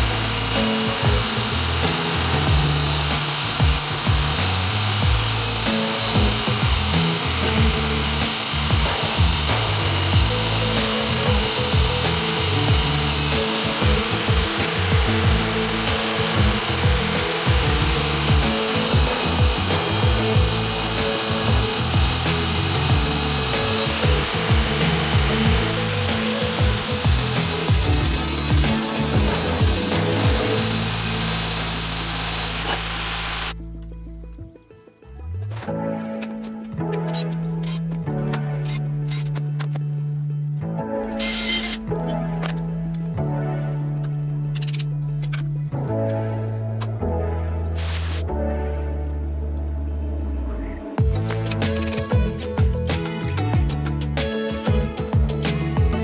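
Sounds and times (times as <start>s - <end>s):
grinder motor whining: 0.0s - 33.6s, 41.2s - 42.6s, 51.0s - 56.0s
steel grinding on abrasive belt: 0.0s - 33.6s
background music: 0.0s - 56.0s.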